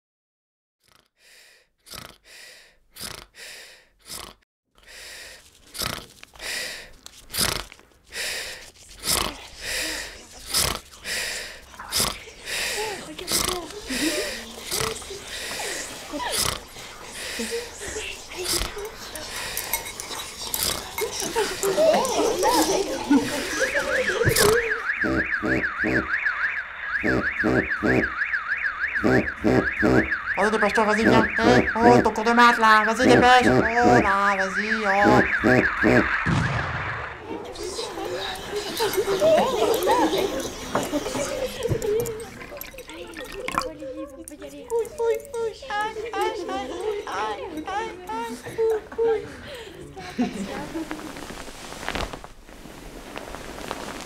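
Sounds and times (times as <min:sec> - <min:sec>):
snorts: 0:00.8 - 0:04.4, 0:05.0 - 0:26.1, 0:27.0 - 0:28.1, 0:29.0 - 0:30.2, 0:33.0 - 0:34.1, 0:35.0 - 0:36.2
sleeping person heavy breathing: 0:01.2 - 0:24.7
flip phone alarm ringing: 0:23.1 - 0:36.3.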